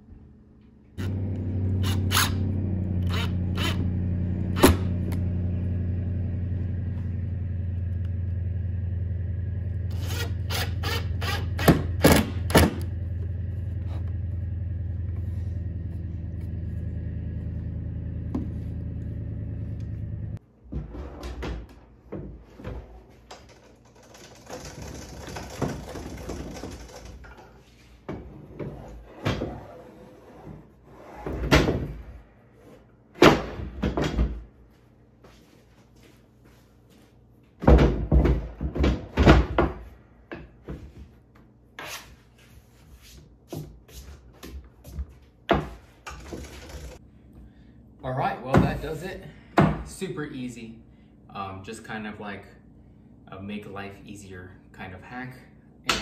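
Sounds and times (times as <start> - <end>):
low machine hum: 0.0 - 20.6, 46.2 - 56.0
thunks: 37.6 - 41.1.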